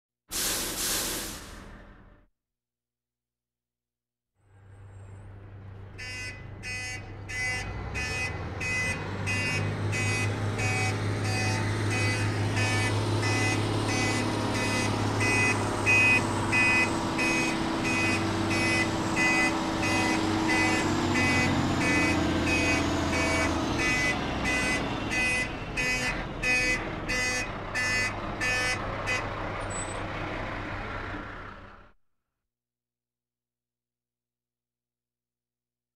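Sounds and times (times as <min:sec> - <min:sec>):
truck engine running: 0:05.2 - 0:31.9
reversing alarm beeping: 0:06.0 - 0:28.8.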